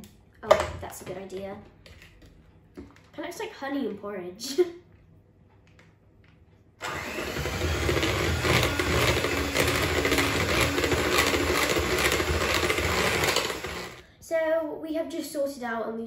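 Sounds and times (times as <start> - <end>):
electric hand mixer running: 6.8 - 14.0.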